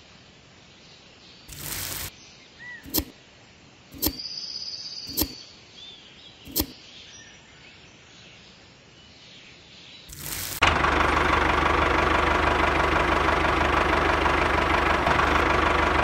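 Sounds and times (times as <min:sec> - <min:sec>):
faint birds chirping: 0:00.0 - 0:10.6.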